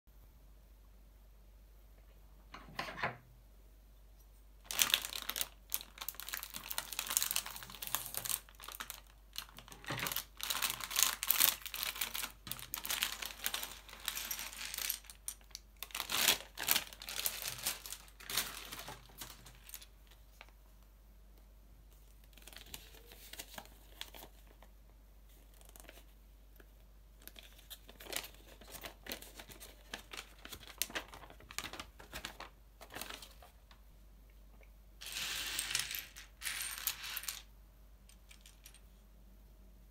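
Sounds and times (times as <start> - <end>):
plastic bag tearing and crinkling: 4.7 - 19.9
paper leaflet rustling: 27.7 - 33.6.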